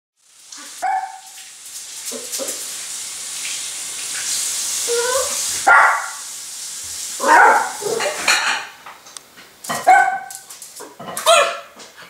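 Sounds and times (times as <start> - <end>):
puppy barking: 0.6 - 1.4, 5.0 - 6.2, 7.2 - 8.3, 9.7 - 10.5, 11.2 - 11.8.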